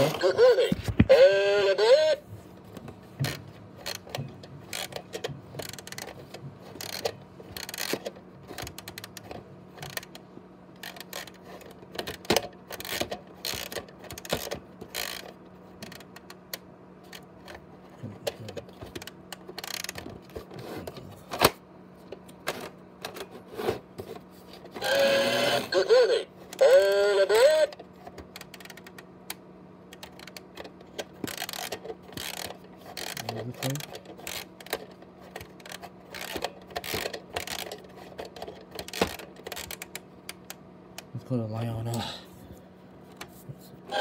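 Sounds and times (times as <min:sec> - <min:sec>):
faint steady hum: 0:00.0 - 0:44.0
plastic clock gears clicking: 0:04.7 - 0:06.2, 0:06.8 - 0:10.1, 0:18.9 - 0:20.1, 0:28.3 - 0:30.6, 0:31.2 - 0:41.1.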